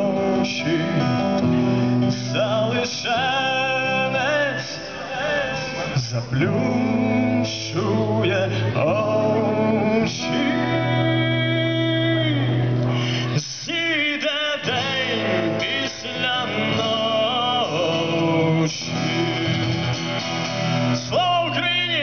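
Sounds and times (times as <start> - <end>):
acoustic guitar: 0.0 - 22.0
man singing: 0.0 - 22.0.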